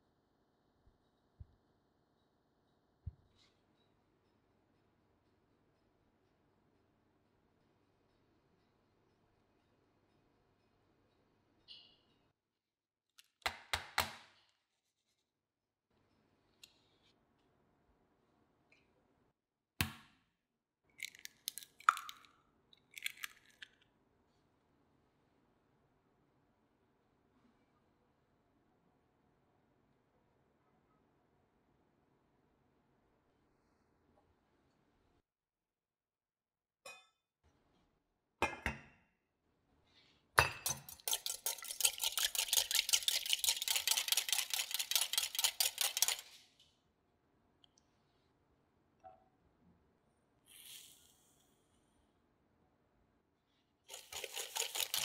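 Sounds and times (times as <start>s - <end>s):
eggshell crackling and clicking: 21.0s - 23.8s, 40.8s - 46.3s.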